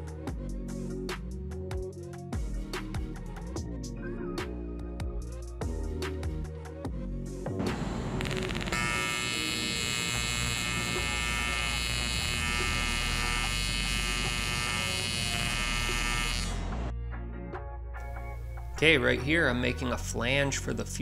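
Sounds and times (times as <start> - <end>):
welding arc buzzing: 7.6 - 16.8.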